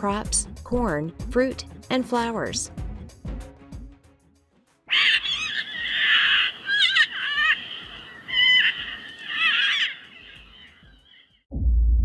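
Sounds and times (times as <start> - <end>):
cockatoo screeching: 4.9 - 11.2.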